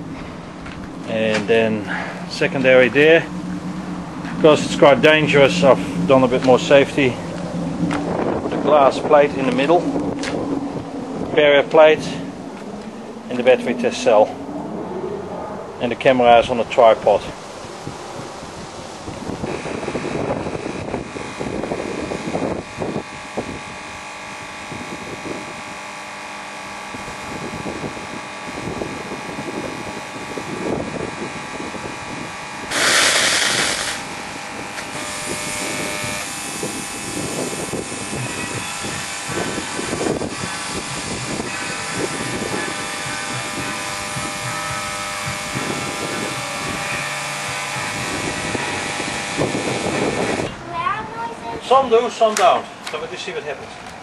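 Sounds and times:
electrical transformer hum: 0:00.0 - 0:54.0
wind buffeting microphone: 0:00.0 - 0:54.0
overloaded batteries buzzing hiss: 0:17.3 - 0:50.5.

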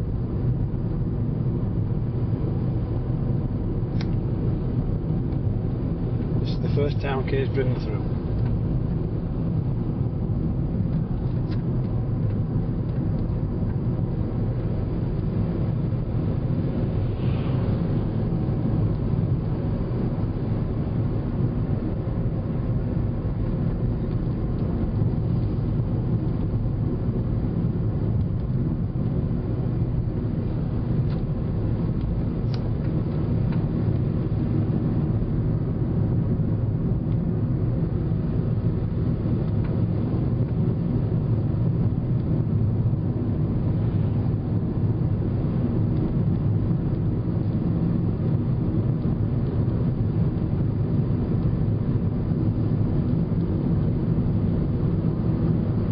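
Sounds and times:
car road noise on highway: 0:00.0 - 0:55.9.

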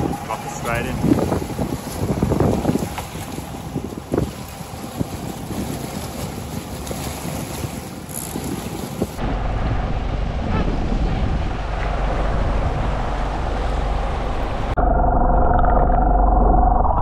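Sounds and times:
water washing around boat: 0:00.0 - 0:14.8
wind buffeting microphone: 0:00.0 - 0:14.8
dull muffled rumble: 0:08.6 - 0:17.0.

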